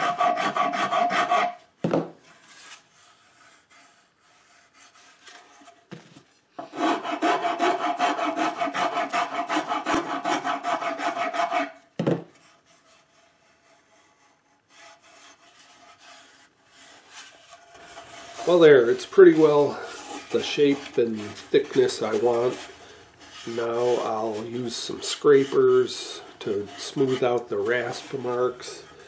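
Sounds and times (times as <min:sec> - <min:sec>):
wood rasp strokes: 0:00.0 - 0:05.8, 0:06.6 - 0:29.0.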